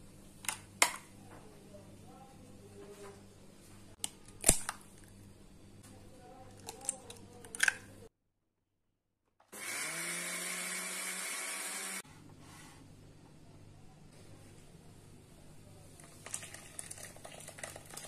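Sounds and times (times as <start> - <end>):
electric blender whirring: 9.5 - 12.0.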